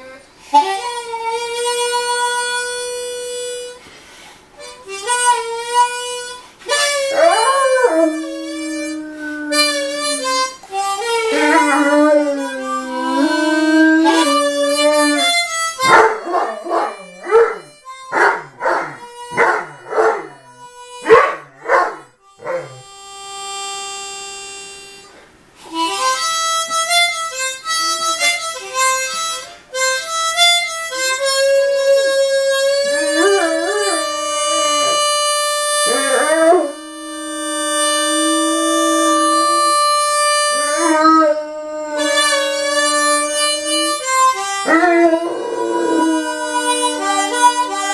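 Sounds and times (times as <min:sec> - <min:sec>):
harmonica playing blues: 0:00.0 - 0:47.9
puppy howling: 0:07.0 - 0:22.8, 0:31.8 - 0:35.1, 0:35.7 - 0:47.9.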